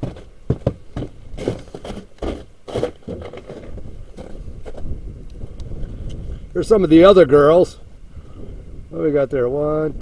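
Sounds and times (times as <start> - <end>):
footsteps crunching on snow: 0.0 - 5.0.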